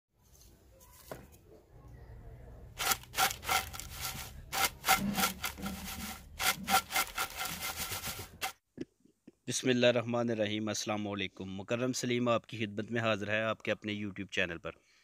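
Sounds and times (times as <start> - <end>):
chips rattling in a bowl: 2.8 - 8.5.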